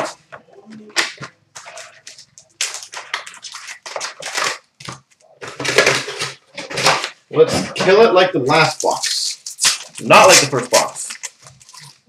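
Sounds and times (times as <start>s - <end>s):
packaging crinkling and rustling: 1.0s - 7.2s, 8.7s - 12.0s.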